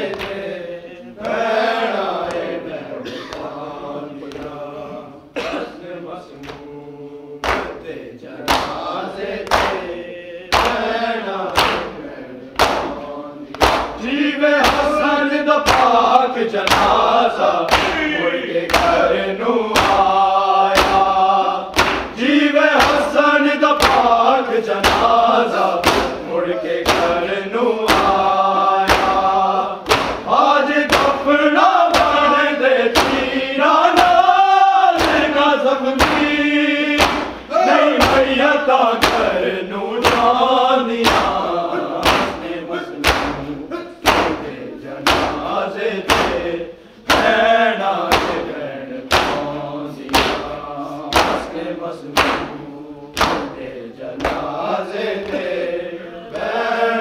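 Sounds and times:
group chanting a lament: 0.0s - 57.0s
sharp even beats: 12.6s - 54.6s.

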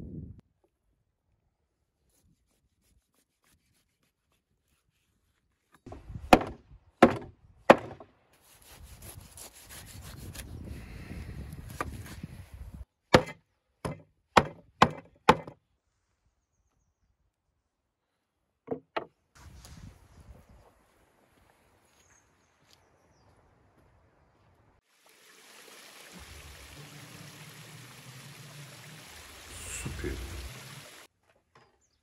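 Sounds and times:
heavy chopping blows: 5.9s - 8.0s.

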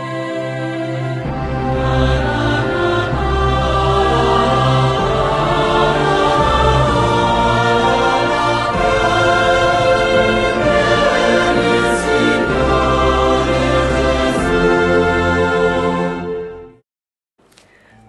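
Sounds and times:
choir singing held chords: 0.0s - 16.8s.

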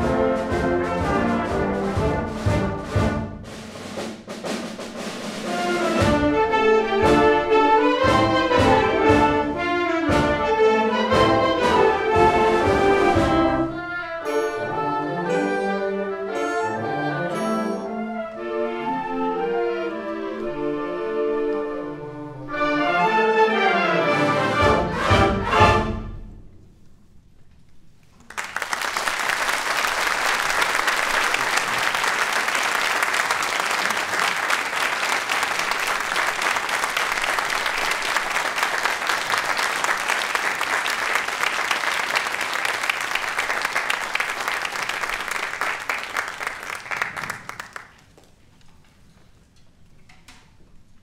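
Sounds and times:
audience applauding: 28.2s - 48.3s.

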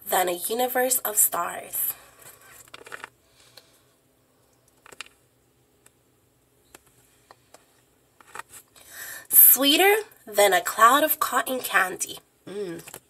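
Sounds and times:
smartphone handling rustle: 2.1s - 3.2s, 6.7s - 8.8s.

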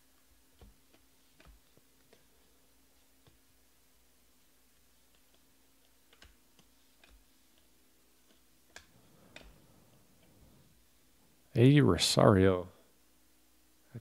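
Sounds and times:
cards being flipped by hand: 0.6s - 2.4s.

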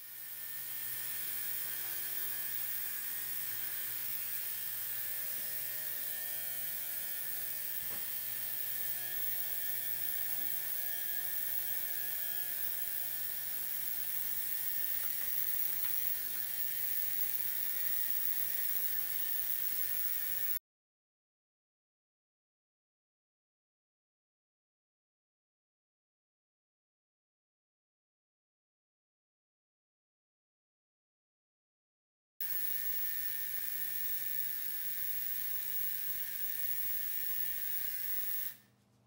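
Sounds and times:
chainsaw chain clicking and rattling: 13.8s - 20.6s.

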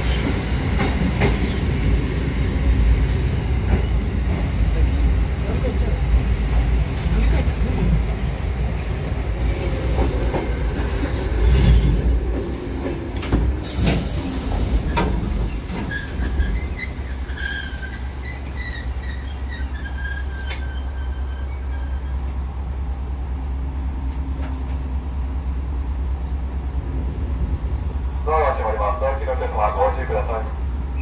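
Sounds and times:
train passing rumbling and clattering: 0.0s - 31.0s
wheel squeal: 14.9s - 22.2s.

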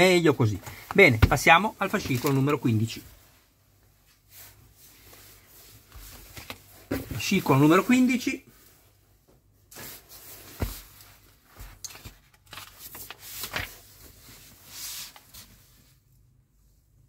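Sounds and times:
paper pages rustling: 0.4s - 3.0s, 5.9s - 7.4s, 9.8s - 15.6s.

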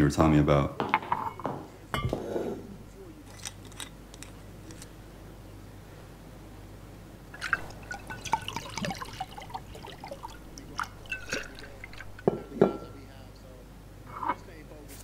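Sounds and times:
liquor pouring into glass: 7.4s - 12.8s.

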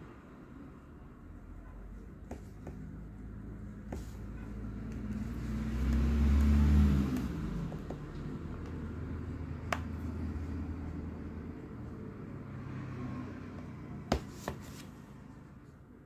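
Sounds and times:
vehicle engine passing by: 3.2s - 14.1s.

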